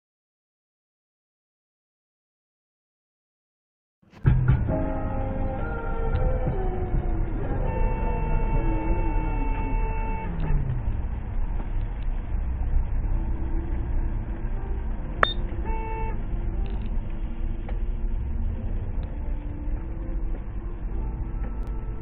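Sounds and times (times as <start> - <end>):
road and engine rumble: 4.1 - 22.0
car horn: 7.3 - 10.9, 15.2 - 16.8
sharp click: 15.2 - 15.4.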